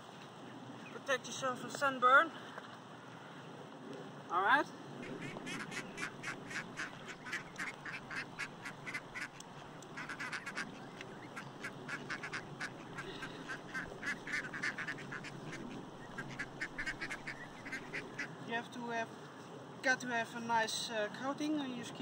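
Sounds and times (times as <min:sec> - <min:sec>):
waterfowl honking and quacking: 0:05.0 - 0:18.4.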